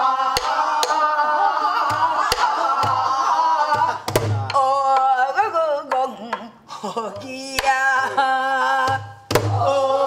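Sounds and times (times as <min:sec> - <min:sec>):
woman singing with vibrato: 0:03.3 - 0:10.0.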